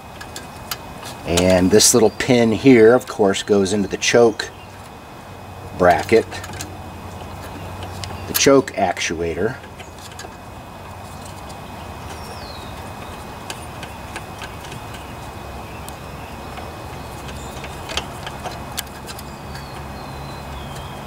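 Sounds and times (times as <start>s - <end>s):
small metallic clicks and taps: 0.1s - 1.6s, 6.0s - 6.8s, 9.6s - 20.9s.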